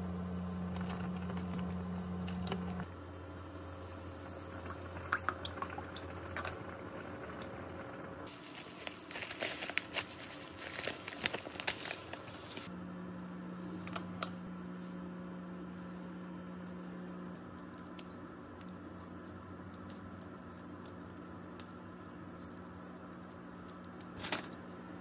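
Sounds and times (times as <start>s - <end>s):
plastic pouch crinkling: 8.3s - 12.7s.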